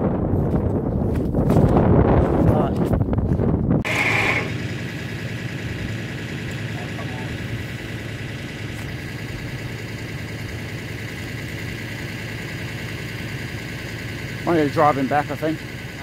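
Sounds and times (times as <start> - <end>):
engine idling: 3.8 - 16.0.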